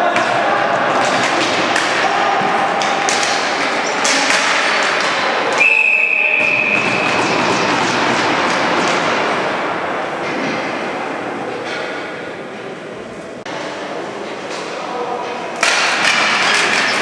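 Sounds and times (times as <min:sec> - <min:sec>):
hockey sticks and ball knocking: 0:00.0 - 0:05.7, 0:06.3 - 0:09.5, 0:15.6 - 0:17.0
spectators' voices: 0:00.0 - 0:17.0.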